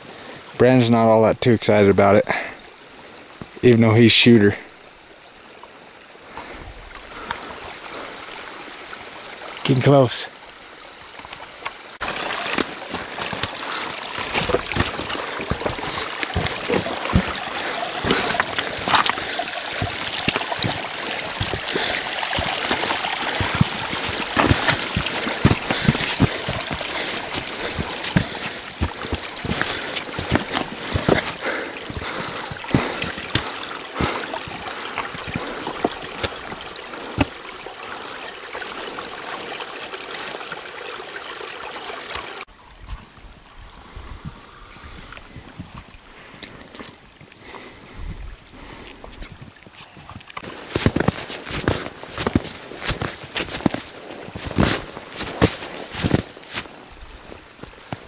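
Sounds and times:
creek trickling over rocks: 0.0s - 58.0s
short water splashes: 11.4s - 40.8s.

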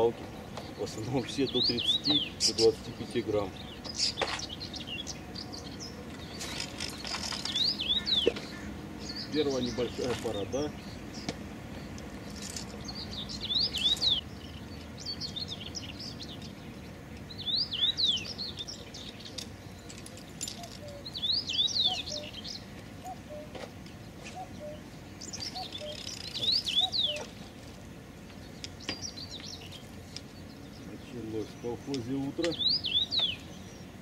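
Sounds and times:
songbird singing: 0.0s - 34.0s.

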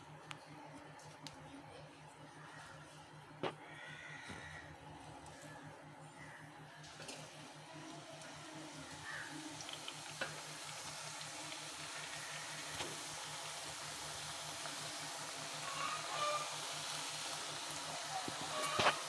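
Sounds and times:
dough sizzling in hot oil: 6.8s - 19.0s.

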